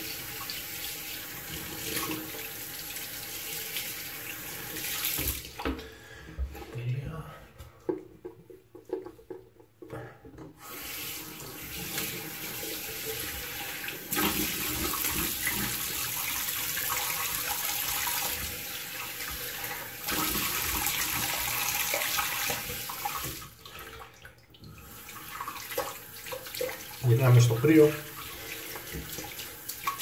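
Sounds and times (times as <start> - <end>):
tap running into sink: 5.1 - 5.8.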